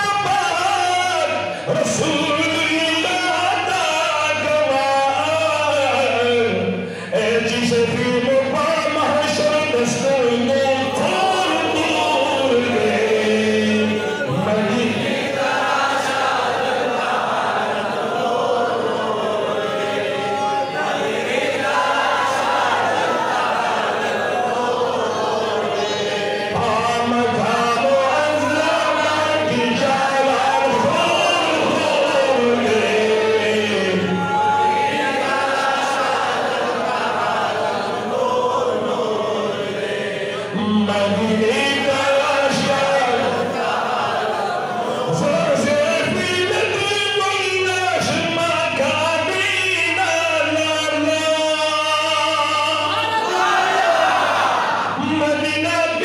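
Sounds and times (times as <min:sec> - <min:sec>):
man chanting into a microphone: 0:00.0 - 0:16.4, 0:25.8 - 0:36.3, 0:38.1 - 0:43.6, 0:45.0 - 0:53.2, 0:54.8 - 0:56.0.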